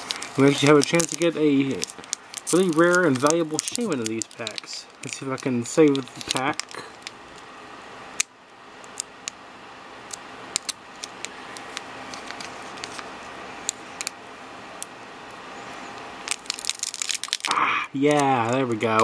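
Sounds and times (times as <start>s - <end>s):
foil wrapper crinkling: 0.0s - 7.5s, 10.1s - 14.2s, 16.2s - 17.5s
steady background noise: 0.0s - 19.0s.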